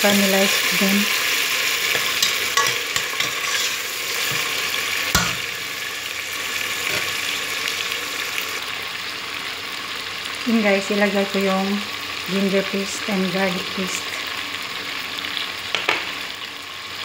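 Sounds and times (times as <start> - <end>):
vegetables sizzling in oil: 0.0 - 17.0
spoon stirring: 1.9 - 4.6.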